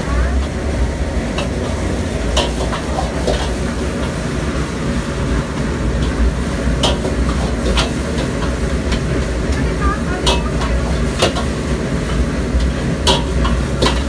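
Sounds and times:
rice sizzling in a wok: 0.0s - 14.0s
wok burner rumbling: 0.0s - 14.0s
rice tossed in wok: 1.2s - 9.6s, 10.3s - 14.0s
metal ladle clanking against wok: 1.3s - 4.3s, 5.4s - 9.3s, 10.2s - 14.0s.

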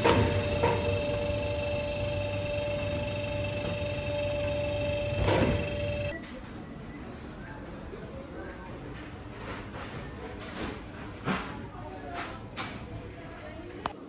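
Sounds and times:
conveyor machinery humming: 0.0s - 6.2s.

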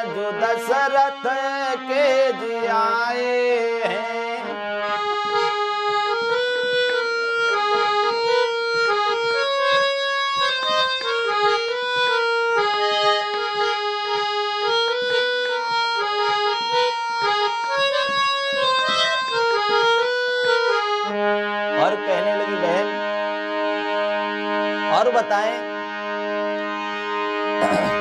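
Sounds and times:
person singing: 0.0s - 4.6s, 27.6s - 28.0s
harmonium playing: 0.0s - 28.0s.

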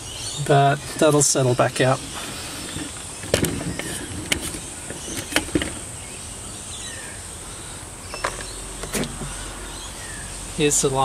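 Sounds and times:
outdoor background: 0.0s - 11.0s
handling knocks and clatters: 1.0s - 5.8s.

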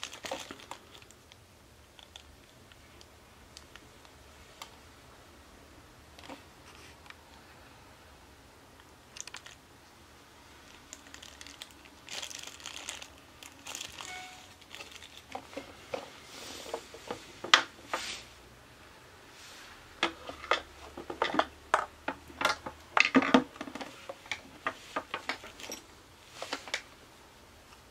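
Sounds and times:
plastic zip bag crinkling: 0.0s - 1.4s, 9.1s - 9.6s, 10.6s - 15.4s
plastic and metal clicks and knocks: 20.0s - 25.5s.

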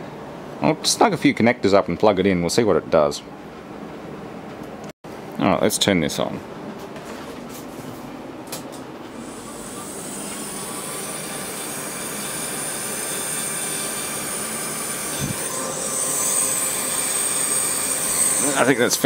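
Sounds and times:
cooling fans whining hiss: 0.0s - 19.0s.

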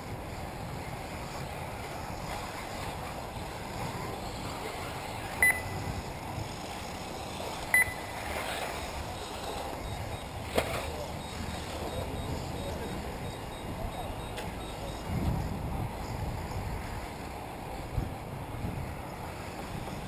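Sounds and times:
wind on microphone: 0.0s - 7.9s, 11.4s - 20.0s
electric rc buggies running: 0.0s - 20.0s
short electronic beeps: 5.4s - 5.9s, 7.7s - 8.3s, 9.8s - 15.2s.

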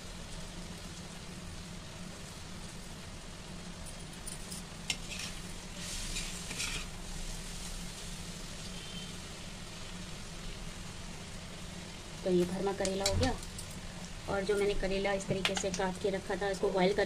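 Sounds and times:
onions sizzling: 0.0s - 17.0s
ladle scraping onions in pan: 4.9s - 8.0s.

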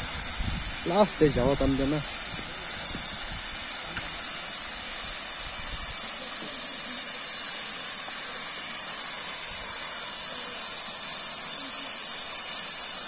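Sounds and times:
small waterfall rushing: 0.0s - 13.0s.

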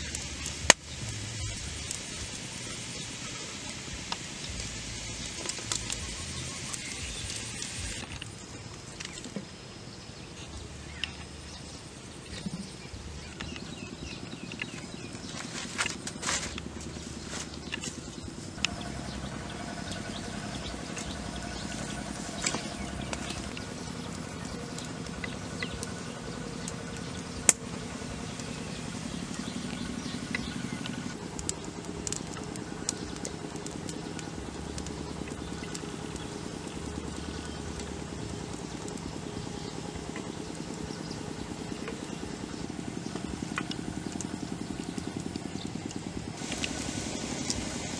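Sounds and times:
wood fire crackling: 0.0s - 47.9s
low rumble: 10.5s - 47.9s
leaves and stems rustling: 12.2s - 47.9s.

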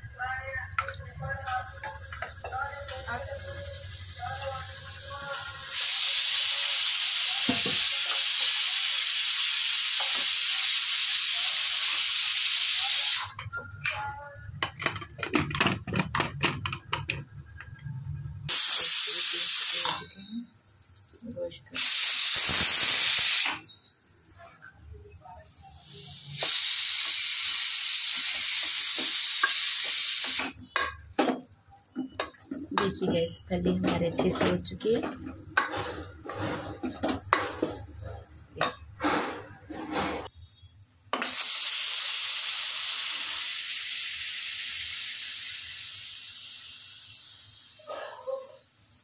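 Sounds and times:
pressure cooker steam hiss: 1.8s - 13.4s, 18.5s - 20.4s, 21.7s - 24.0s, 25.2s - 49.0s.

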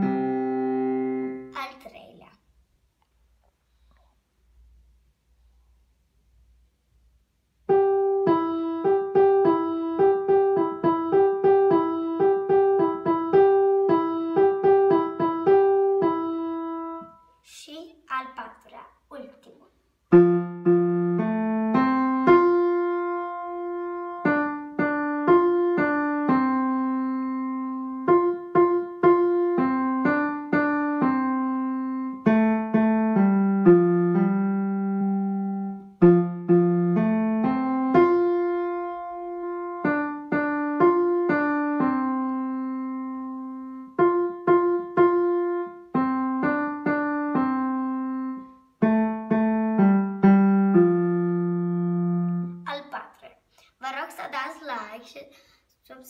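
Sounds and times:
simple melody on digital piano: 0.0s - 1.5s, 7.6s - 17.4s, 20.1s - 52.6s.

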